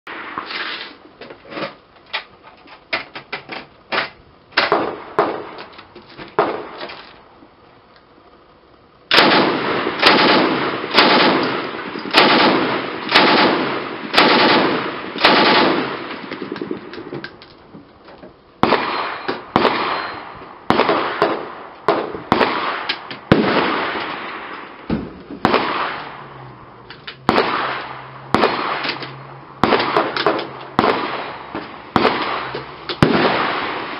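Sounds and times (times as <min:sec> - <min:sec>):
sharp gunshots: 0:04.6 - 0:05.6, 0:06.4 - 0:06.8, 0:09.1 - 0:17.1, 0:18.6 - 0:26.4, 0:27.2 - 0:33.9
machine gun firing bursts: 0:09.1 - 0:17.1, 0:18.6 - 0:24.2, 0:27.3 - 0:29.0, 0:29.6 - 0:33.9.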